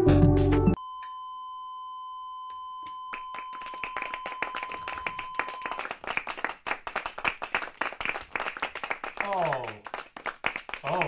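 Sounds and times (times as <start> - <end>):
people clapping: 3.1 - 11.0.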